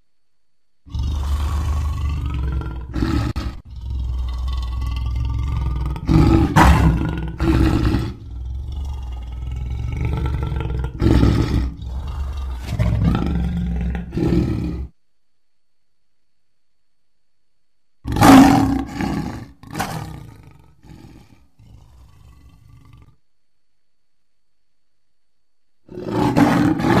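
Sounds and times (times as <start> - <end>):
lion roaring: 0.9 - 15.0, 18.1 - 23.2, 25.9 - 27.0.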